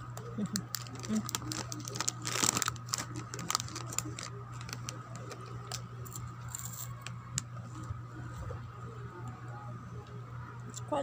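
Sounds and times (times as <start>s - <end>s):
plastic snack packet crinkling: 0.1s - 7.4s.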